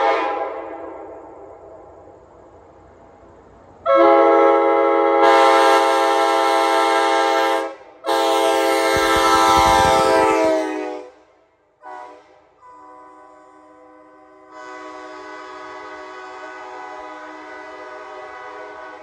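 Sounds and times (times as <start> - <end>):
locomotive air horn chord: 0.0 - 0.8, 3.9 - 11.0, 11.8 - 19.0.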